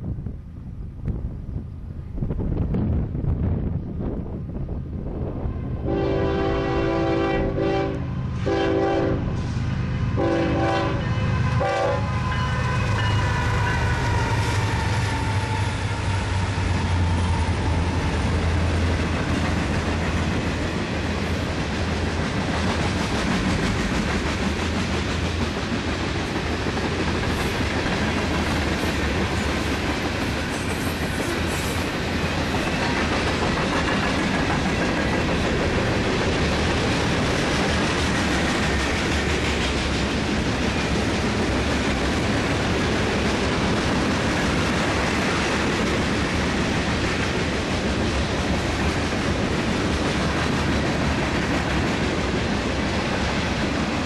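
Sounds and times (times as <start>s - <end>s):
diesel locomotive engine drone: 0.0s - 54.0s
train horn blasts: 5.8s - 9.4s, 10.1s - 16.7s.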